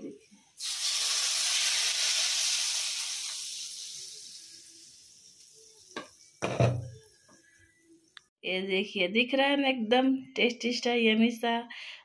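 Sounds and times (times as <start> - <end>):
hot oil sizzling loudly: 0.6 - 7.1.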